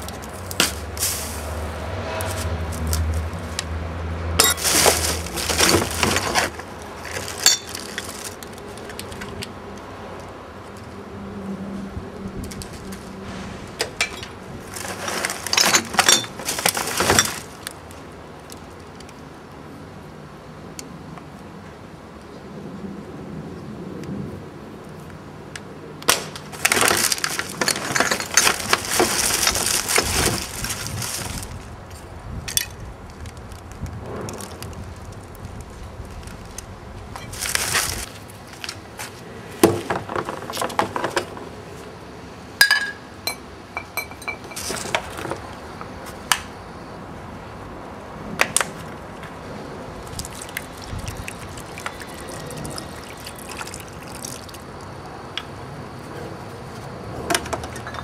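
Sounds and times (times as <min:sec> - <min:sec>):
glass clinks and knocks: 0:04.4 - 0:04.8, 0:07.4 - 0:07.8, 0:42.6 - 0:44.7
rushing splashing water: 0:50.0 - 0:54.6.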